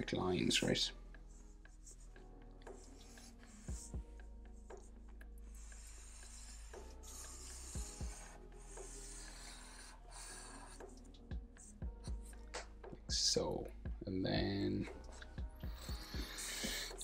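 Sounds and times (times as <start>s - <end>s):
marker pen scratching paper: 1.3s - 12.3s.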